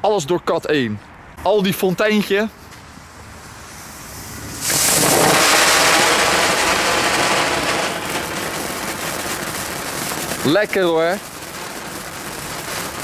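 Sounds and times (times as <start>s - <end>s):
fountain firework hissing sparks: 2.7s - 13.0s.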